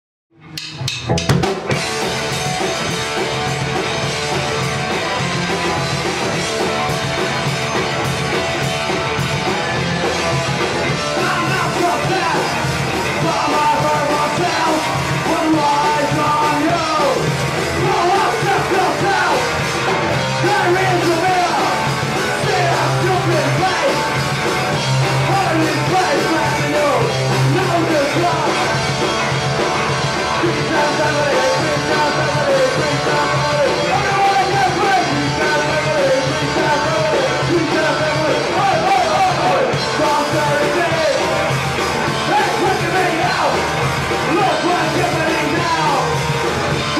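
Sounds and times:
amplified guitars: 0.3 - 46.9
drum kit: 0.4 - 46.9
person singing: 11.0 - 19.6, 20.3 - 24.5, 25.1 - 28.9, 30.2 - 41.5, 42.1 - 46.2.

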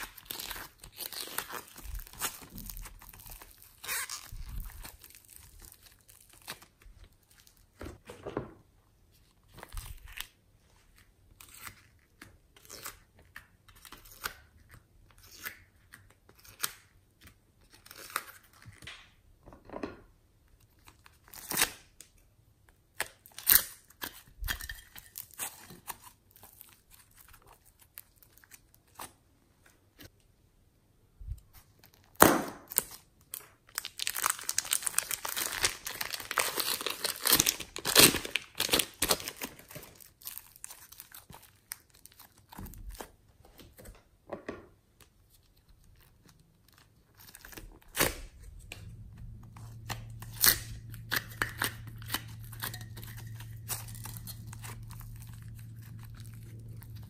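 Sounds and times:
foam clay tearing: 33.7 - 43.2, 45.2 - 57.0
low steady hum: 45.7 - 57.0.

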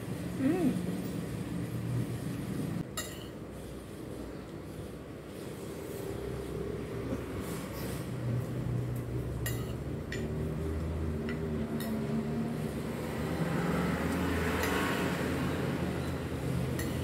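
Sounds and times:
forks clinking on ceramic plate: 3.0 - 3.4, 9.4 - 10.4, 16.8 - 17.0.

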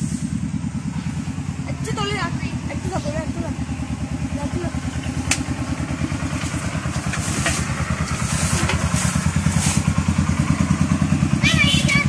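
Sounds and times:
small engine thumping: 0.3 - 12.0.

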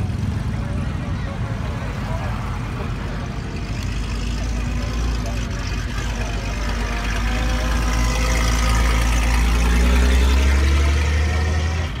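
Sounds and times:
vehicle engines driving past: 0.0 - 12.0.

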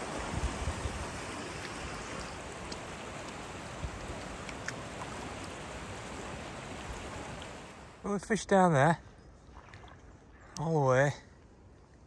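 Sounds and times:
wind buffeting microphone: 0.0 - 2.6
river water over stones: 0.0 - 12.0.

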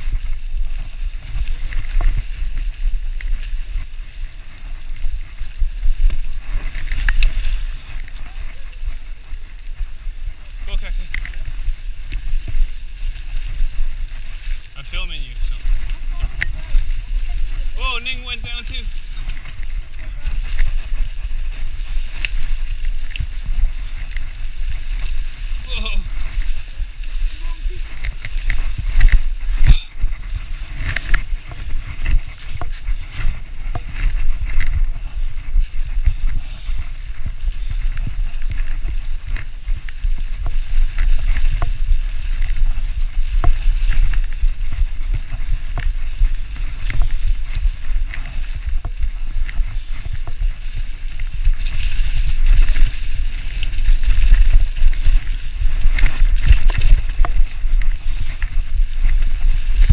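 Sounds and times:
bike riding rumble: 0.0 - 59.9
tyres crackling through dry leaves: 0.0 - 59.9
wind on microphone: 0.0 - 59.9
bike rattles and knocks: 15.7 - 59.9.

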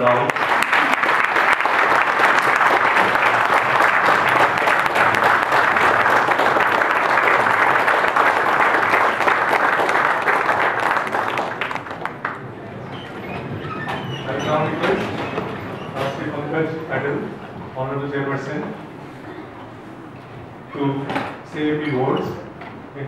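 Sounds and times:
audience applauding: 0.0 - 16.3.

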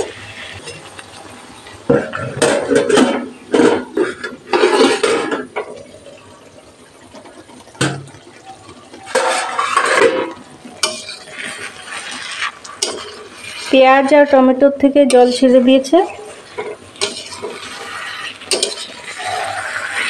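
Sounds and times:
stirring and scraping in metal pan: 1.9 - 5.5, 8.9 - 20.0.

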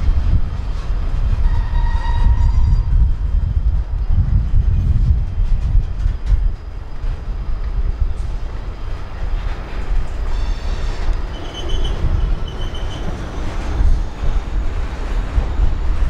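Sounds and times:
freight cars rumbling on rails: 0.0 - 16.0
high wheel squeal: 1.4 - 3.0, 10.2 - 14.3.

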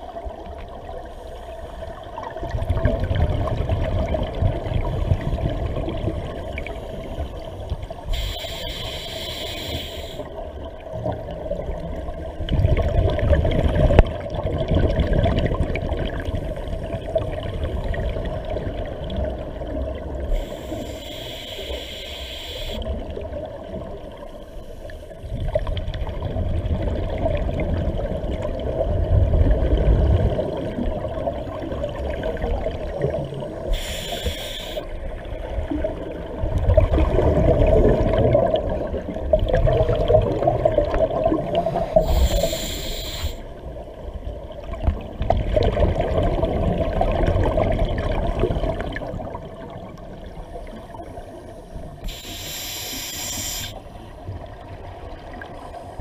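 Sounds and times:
exhaled bubbles rumbling underwater: 0.0 - 21.1, 22.8 - 52.6, 53.7 - 56.0
regulator inhalation hiss: 8.1 - 10.3, 20.3 - 22.9, 33.7 - 34.9, 41.8 - 43.5, 52.0 - 53.9.

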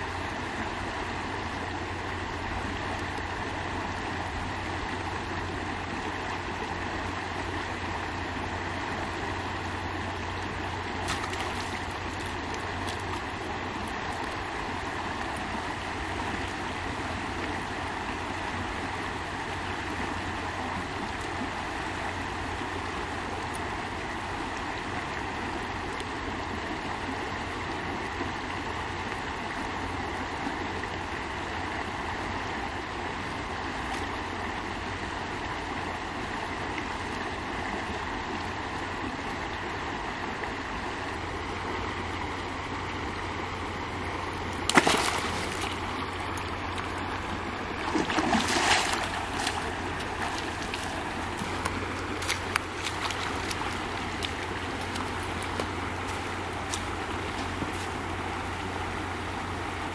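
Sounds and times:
river flowing over rocks: 0.0 - 59.9
fish splashing at surface: 44.6 - 46.1, 47.8 - 57.9.

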